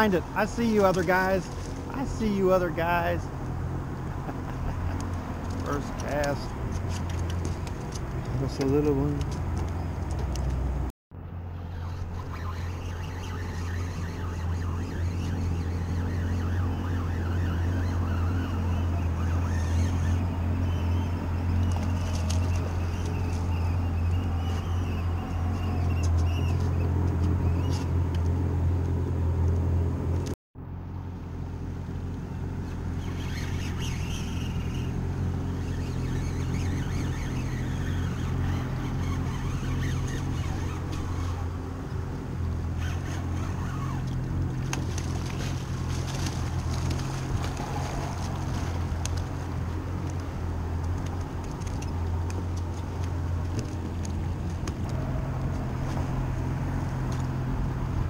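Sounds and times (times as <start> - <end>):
boat engine idling: 11.5 - 30.2, 31.1 - 58.0.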